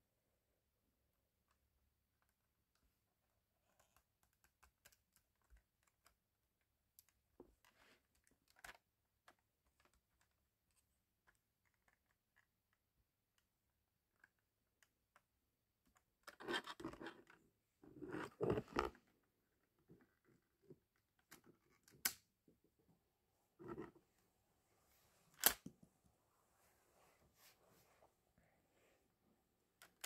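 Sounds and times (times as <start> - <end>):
sharp plastic snaps: 21.8 - 22.3, 25.4 - 25.7.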